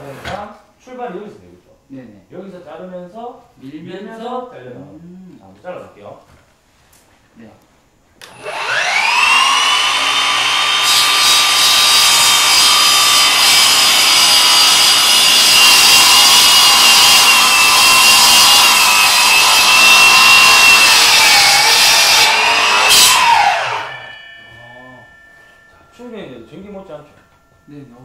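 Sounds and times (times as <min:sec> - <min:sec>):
saw blade cutting wood: 0:08.3 - 0:27.2
miter saw high whine: 0:08.3 - 0:28.0.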